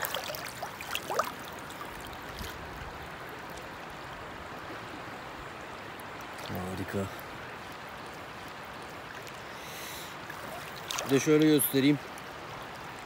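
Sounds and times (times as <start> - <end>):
small splashes in water: 0.0 - 2.6, 10.3 - 12.0
river flowing over stones: 0.0 - 13.0.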